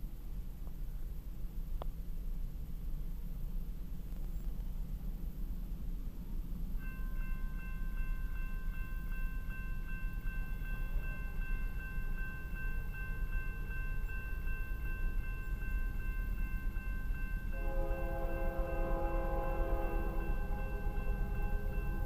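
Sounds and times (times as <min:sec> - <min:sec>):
crossing warning bell ringing: 0:06.8 - 0:22.0
train air horn: 0:17.5 - 0:22.0.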